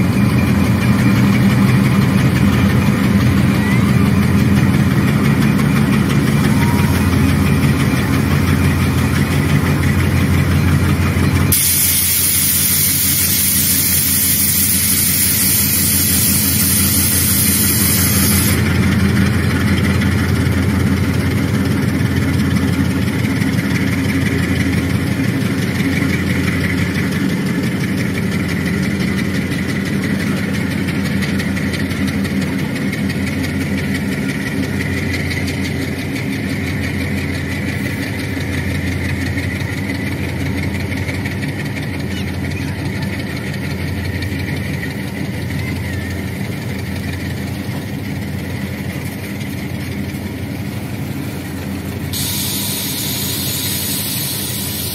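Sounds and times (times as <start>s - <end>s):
diesel locomotive engines rumbling: 0.0s - 54.9s
loud hiss: 11.5s - 18.6s, 52.0s - 54.9s.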